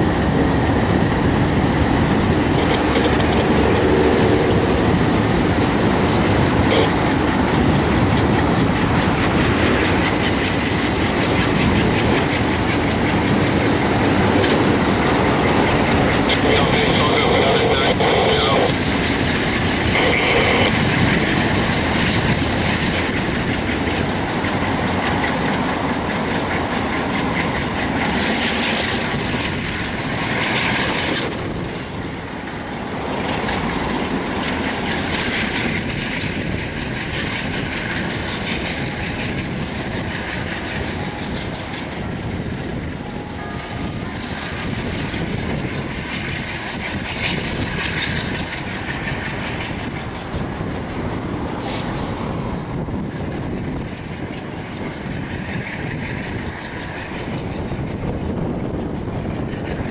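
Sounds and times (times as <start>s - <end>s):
rumble of locomotive engines: 0.0s - 59.9s
train wheels clicking over rail joints: 0.1s - 17.4s, 18.4s - 43.0s.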